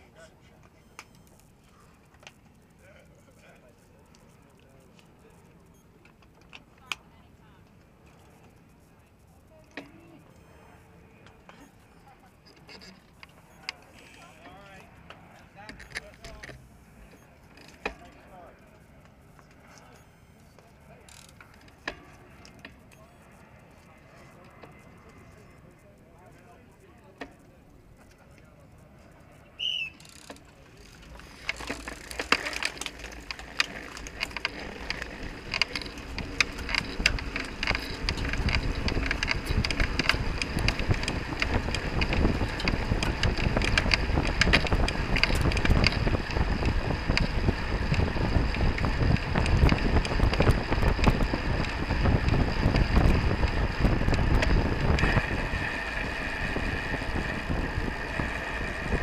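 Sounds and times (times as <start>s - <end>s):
clicking cleats and drivetrains: 0.0s - 59.0s
steady higher whir: 6.8s - 59.0s
tyre noise: 29.6s - 59.0s
wind rush on microphone: 36.1s - 59.0s.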